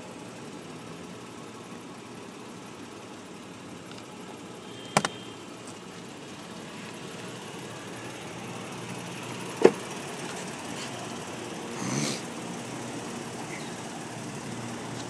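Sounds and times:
car door shutting: 9.6s - 9.9s.

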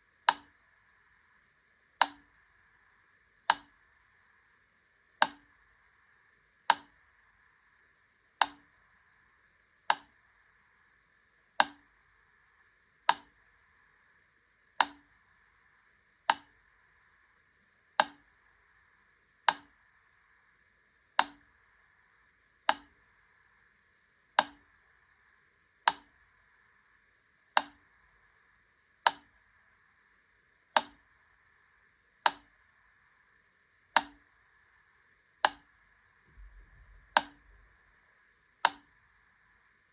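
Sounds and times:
faint steady hiss: 0.0s - 39.9s
mechanical metronome ticking: 36.4s - 37.6s.

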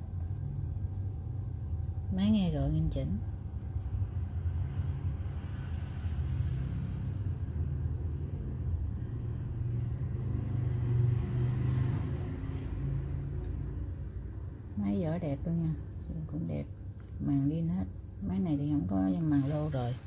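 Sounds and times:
brief hiss: 6.2s - 7.4s.

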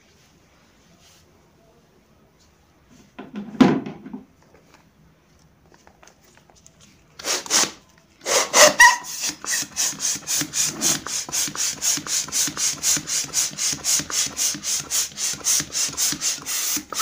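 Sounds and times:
balloon pump air strokes: 7.2s - 17.0s
latex balloon squeak: 7.3s - 11.0s.

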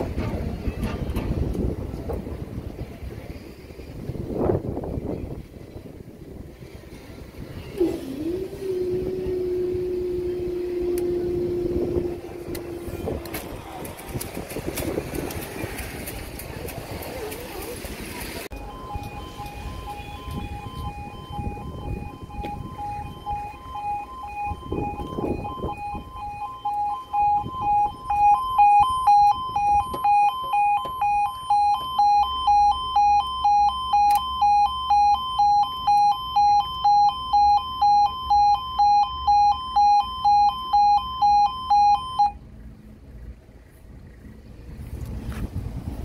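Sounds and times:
level crossing alarm: 8.3s - 13.9s, 18.5s - 42.4s.

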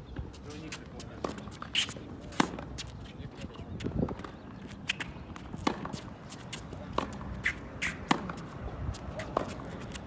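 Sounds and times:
sneakers scuffing on court: 0.1s - 10.0s
racquets striking tennis ball: 0.7s - 2.9s, 4.0s - 10.0s
ball bouncing: 5.4s - 8.5s.

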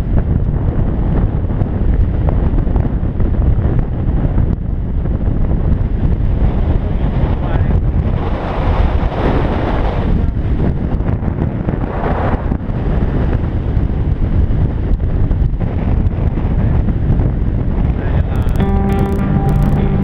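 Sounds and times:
wind buffeting microphone: 0.0s - 20.0s
music: 18.3s - 20.0s.

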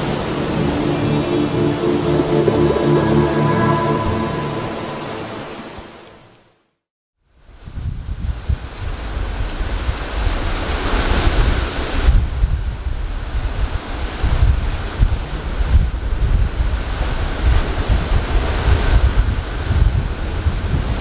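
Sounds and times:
ocean surf breaking: 0.0s - 6.5s, 8.8s - 21.0s
wind buffeting microphone: 7.5s - 21.0s.

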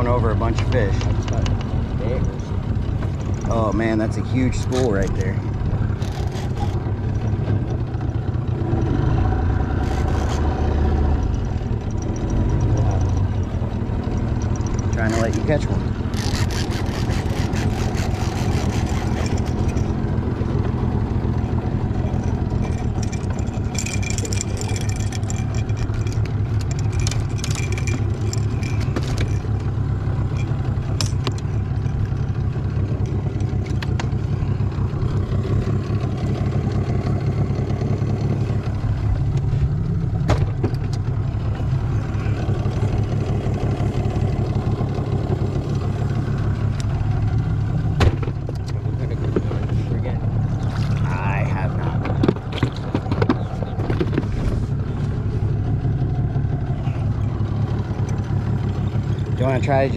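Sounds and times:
outboard motor droning: 0.0s - 59.9s
clicks and rattles: 0.4s - 8.2s, 9.7s - 34.2s, 51.9s - 54.6s.

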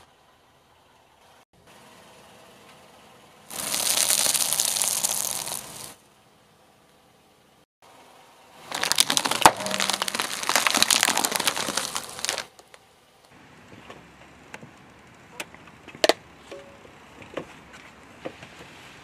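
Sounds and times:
sharp cracks: 3.5s - 6.0s, 8.7s - 12.8s
tyre crunching plastic packet: 3.5s - 6.0s, 8.7s - 12.8s.

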